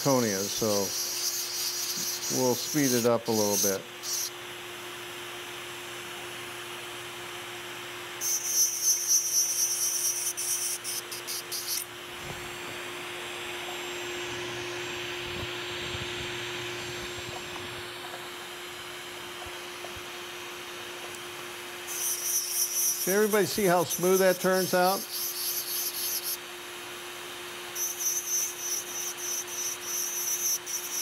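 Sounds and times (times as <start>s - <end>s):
dental handpiece whining: 0.0s - 4.4s, 8.2s - 11.9s, 21.9s - 26.4s, 27.8s - 31.0s.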